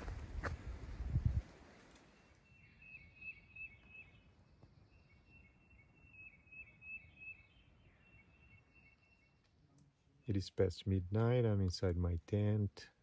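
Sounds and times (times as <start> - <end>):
bird chirping: 2.1 - 9.6.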